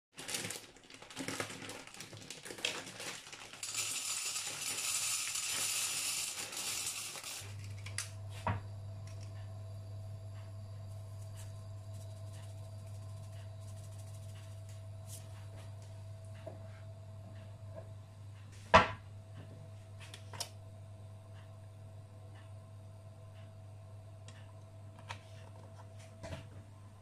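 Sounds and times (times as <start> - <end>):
plastic bag crinkling: 0.2 - 5.6
dry pasta pouring into metal pot: 0.2 - 7.5
low hum: 6.3 - 27.0.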